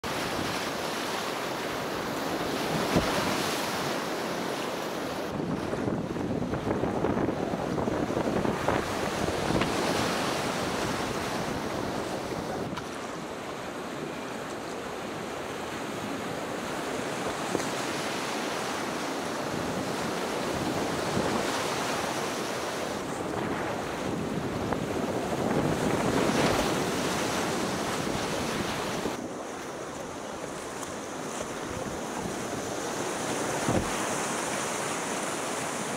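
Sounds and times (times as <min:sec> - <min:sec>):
wind noise on microphone: 0:02.0 - 0:03.9, 0:05.2 - 0:13.0, 0:19.2 - 0:35.9.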